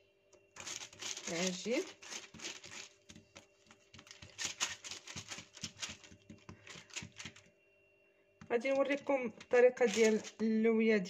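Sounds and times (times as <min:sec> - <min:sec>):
hands patting dough on countertop: 0:05.1 - 0:07.4.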